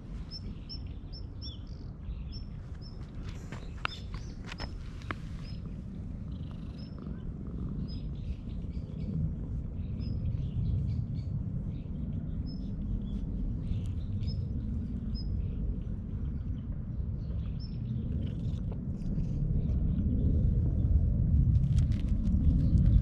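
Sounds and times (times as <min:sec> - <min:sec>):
cat purring: 0:03.1 - 0:10.9, 0:17.3 - 0:20.8.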